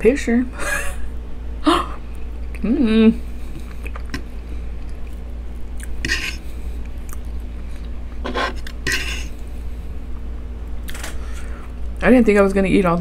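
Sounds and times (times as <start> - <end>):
steady low hum: 0.0 - 13.0
chewing food: 3.5 - 8.0
metal fork scraping on wood: 6.0 - 6.4, 8.2 - 9.3.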